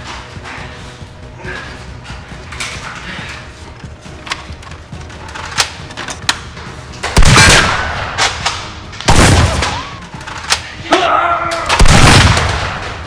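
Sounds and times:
gunshot-like blasts: 9.1s - 9.8s, 11.8s - 12.8s.

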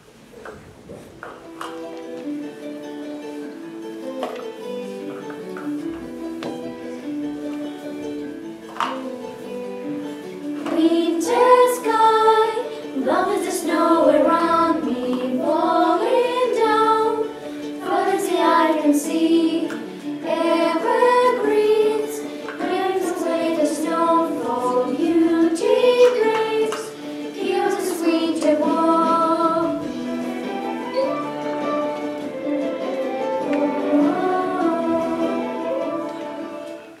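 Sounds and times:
children singing together: 10.5s - 37.0s.

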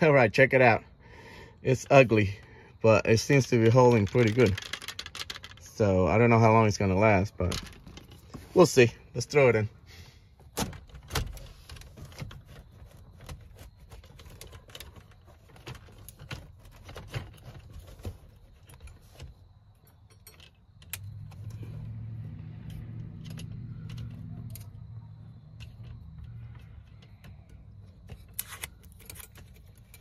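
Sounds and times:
metal clicks and rattles: 3.3s - 5.9s, 10.5s - 30.0s.

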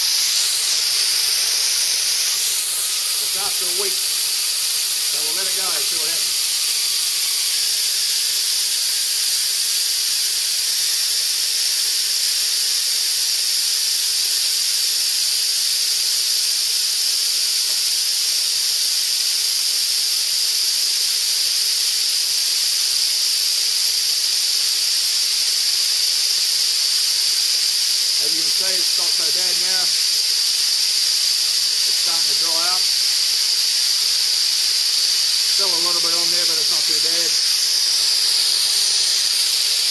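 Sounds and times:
compressed air hissing from valve: 0.0s - 39.9s.

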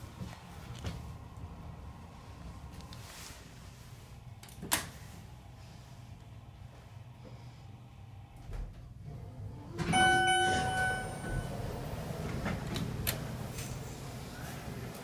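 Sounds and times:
elevator doors sliding open: 9.0s - 15.0s
elevator chime: 9.8s - 12.3s.

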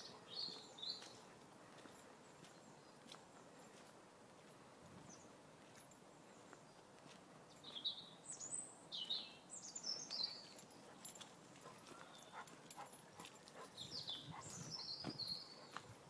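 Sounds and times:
bird chirping: 0.0s - 1.3s, 7.5s - 16.0s
quiet woodland background: 0.0s - 16.0s.

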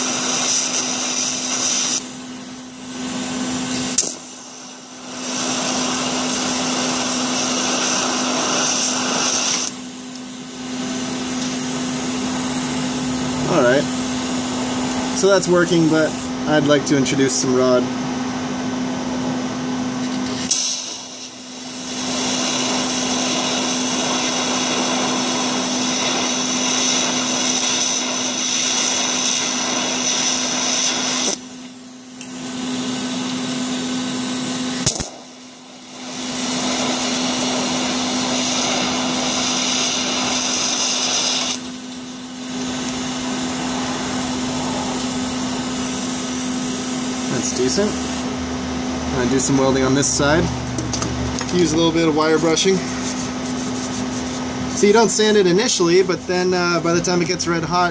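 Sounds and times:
welding arc hissing: 0.0s - 16.4s, 20.2s - 48.3s, 51.5s - 57.9s
welder hum: 0.0s - 17.9s, 20.1s - 57.9s
sharp click: 34.8s - 35.2s.

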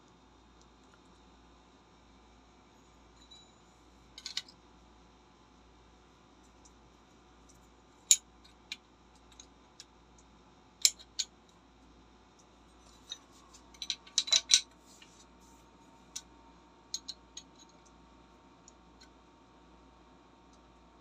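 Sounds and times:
small parts clicking and clinking: 4.2s - 4.6s, 7.5s - 11.4s, 12.4s - 15.2s, 16.9s - 18.0s.

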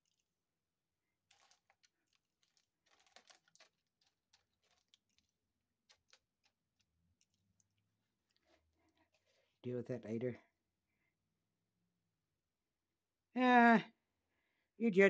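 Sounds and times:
plastic bags crinkling: 1.2s - 9.4s.

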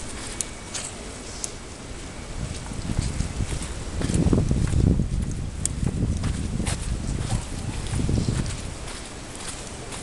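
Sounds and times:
footsteps: 0.0s - 10.0s.

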